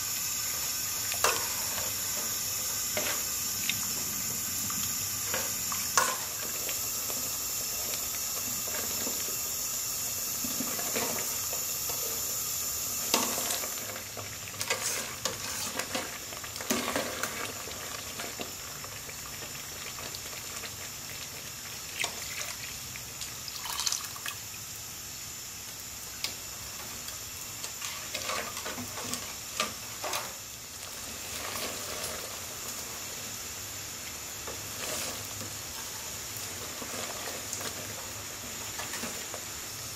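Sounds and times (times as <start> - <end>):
steady hiss: 0.0 - 39.9
juice pouring: 22.2 - 24.6.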